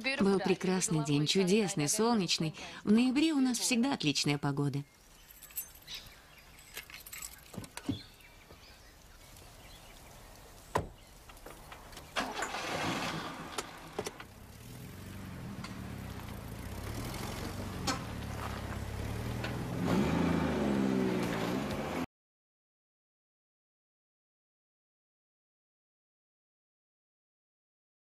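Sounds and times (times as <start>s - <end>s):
car engine starting and running: 5.2s - 22.1s.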